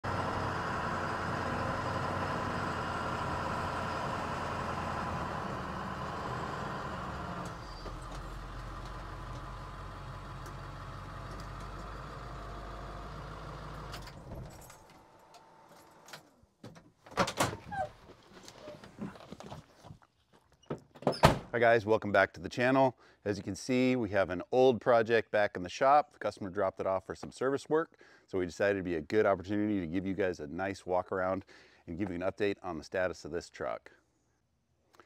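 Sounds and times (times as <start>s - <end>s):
diesel engine running: 0.0s - 15.1s.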